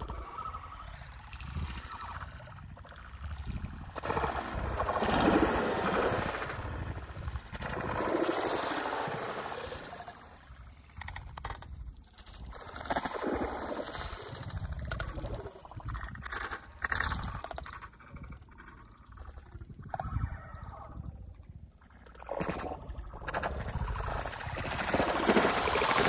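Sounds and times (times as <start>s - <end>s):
water sloshing and splashing: 1.4s - 20.5s, 21.6s - 26.0s.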